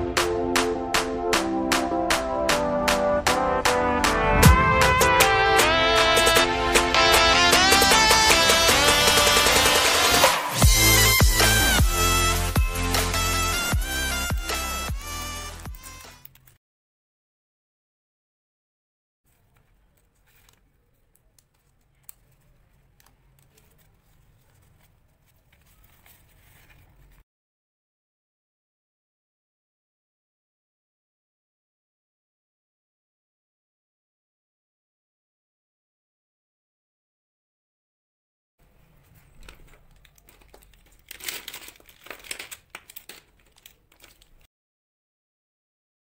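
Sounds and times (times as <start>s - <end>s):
card stock rustling and folding: 19.3s - 27.2s, 38.6s - 44.5s
plastic pens clattering: 19.3s - 27.2s, 39.0s - 44.5s.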